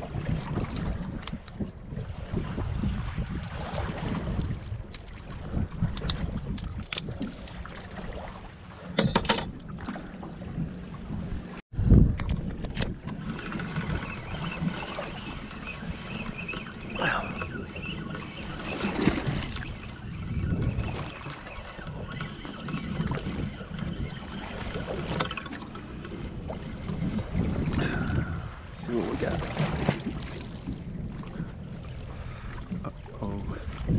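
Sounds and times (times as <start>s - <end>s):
waves lapping against boat hull: 0.0s - 33.9s
wind on microphone: 0.0s - 33.9s.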